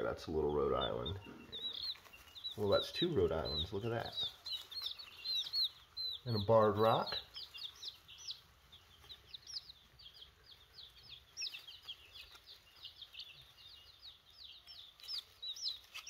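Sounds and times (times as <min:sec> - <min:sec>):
baby chicks peeping: 0:00.0 - 0:16.0.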